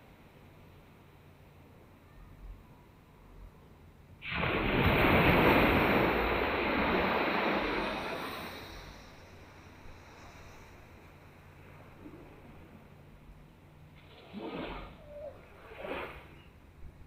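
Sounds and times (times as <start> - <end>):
wave breaking on beach: 4.2 - 12.8.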